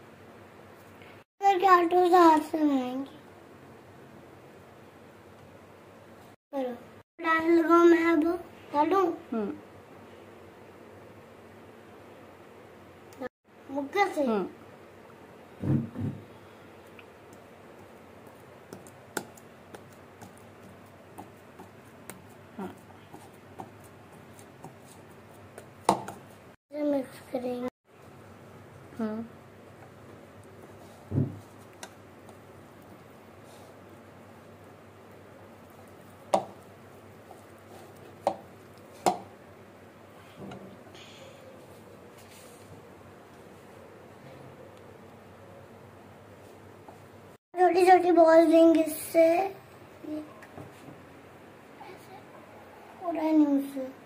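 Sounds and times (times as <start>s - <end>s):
soft thud: 15.6s - 16.2s, 31.1s - 31.4s
hand kneading dough in bowl: 17.2s - 26.5s
dough knocking against bowl: 25.5s - 26.3s, 36.3s - 36.6s, 38.2s - 39.3s.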